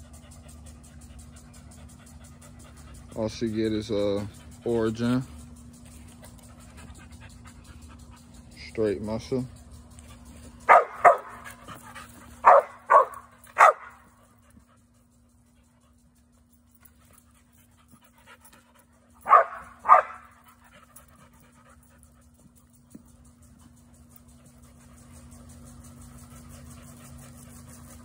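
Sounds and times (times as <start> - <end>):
dog barking: 10.7 - 11.6, 12.4 - 14.1, 19.2 - 20.4.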